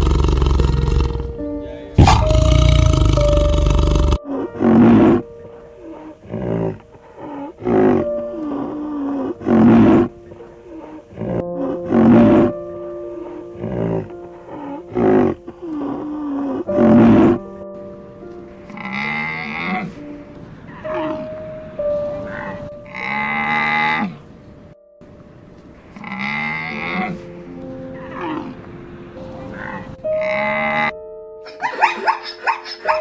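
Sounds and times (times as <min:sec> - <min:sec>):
background music: 0:00.0 - 0:33.0
loud animal calls: 0:02.0 - 0:10.1, 0:31.5 - 0:33.0.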